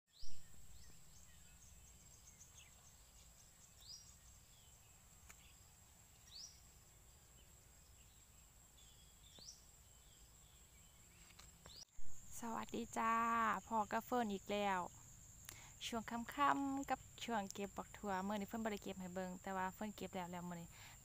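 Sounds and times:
bird chirping: 0.1s - 13.8s
insect whine: 0.4s - 21.0s.

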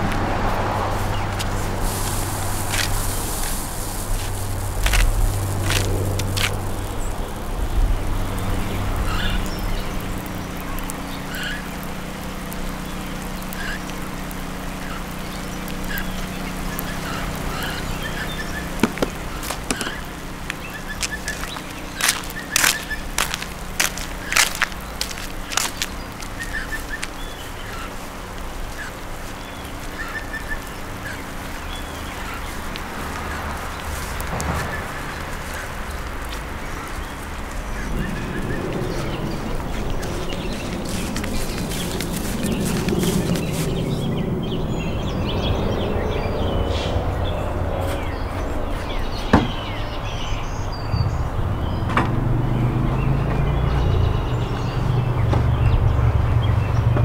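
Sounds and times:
steady low rumble: 0.0s - 57.0s
faint bird calls: 9.0s - 11.8s, 14.7s - 45.6s
sharp knocks: 18.8s - 20.0s.

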